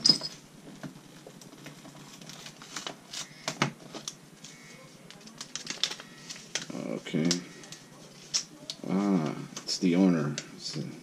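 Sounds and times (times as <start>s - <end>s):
paper note rustling and crinkling: 1.2s - 8.5s.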